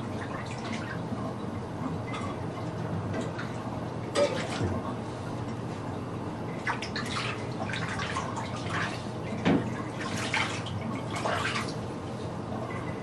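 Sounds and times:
bath water splashing in a tub: 0:00.0 - 0:01.1, 0:06.5 - 0:11.9.

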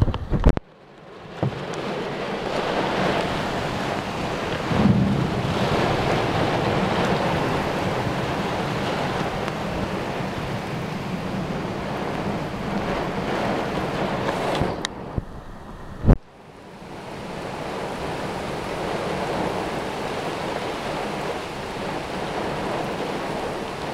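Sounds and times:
heavy rain: 0:00.0 - 0:23.9
strong wind gusts: 0:00.0 - 0:23.9.

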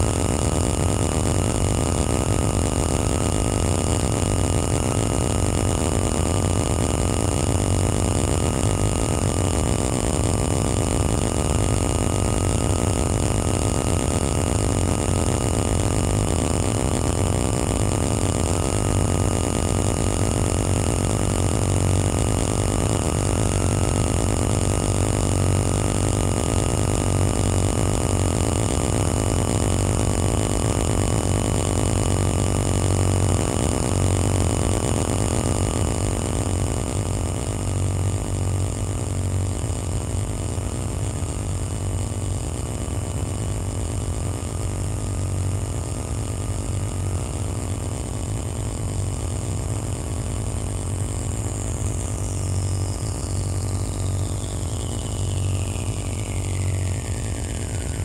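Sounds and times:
dense electronic drone: 0:00.0 - 0:58.0.

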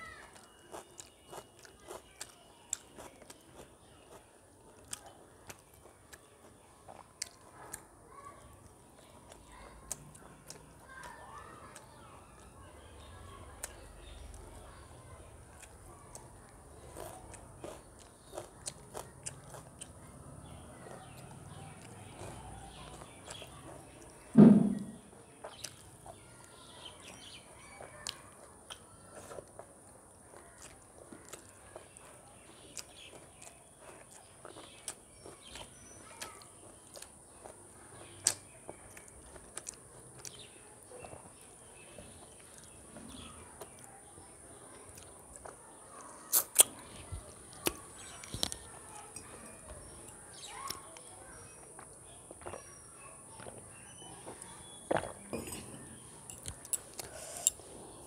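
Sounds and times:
soft chewing: 0:00.0 - 0:58.0
mouth smacks while chewing: 0:46.2 - 0:48.6, 0:56.4 - 0:57.6
loud mouth sound: 0:46.3 - 0:46.7.

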